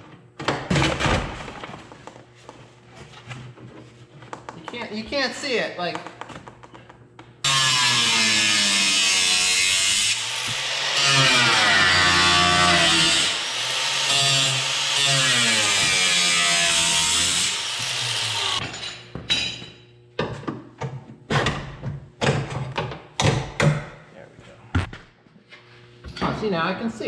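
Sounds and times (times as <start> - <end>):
power tool motor running: 7.4 - 18.6.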